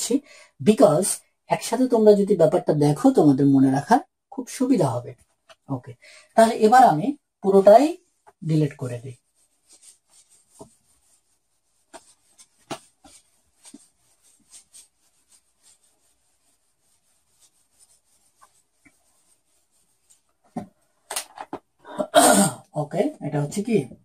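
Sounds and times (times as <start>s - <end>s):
eraser rubbing on whiteboard: 9.0s - 20.6s.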